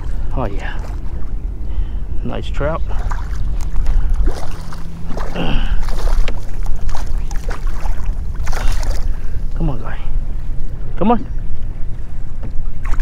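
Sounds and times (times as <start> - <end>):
wind on microphone: 0.0 - 13.0
fish splashing in water: 2.9 - 9.3.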